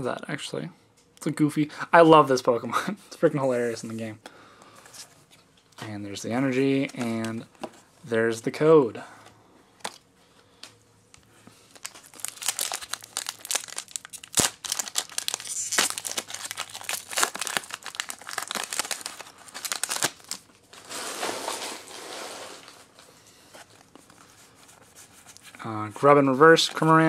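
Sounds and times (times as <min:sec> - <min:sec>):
foil wrapper crinkling: 0:11.6 - 0:22.8
cards rustling out of pack: 0:11.6 - 0:27.0.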